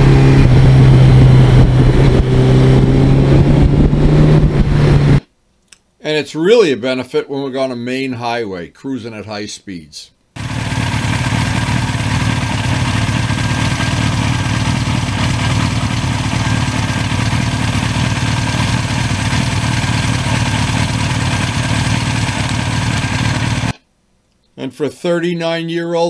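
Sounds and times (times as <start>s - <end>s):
motorcycle engine idling: 10.4s - 23.7s.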